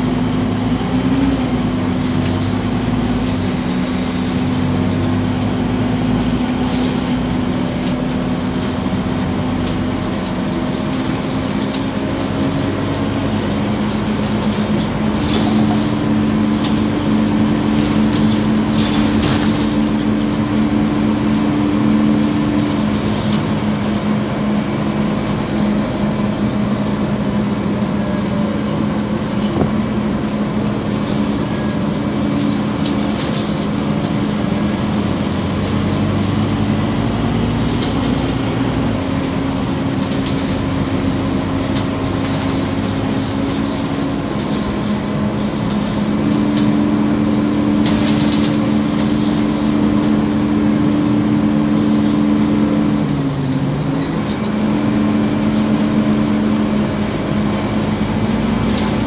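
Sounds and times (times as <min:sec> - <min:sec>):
bus engine humming: 0:00.0 - 0:59.0
rattling clatters: 0:08.5 - 0:24.0, 0:41.5 - 0:59.0.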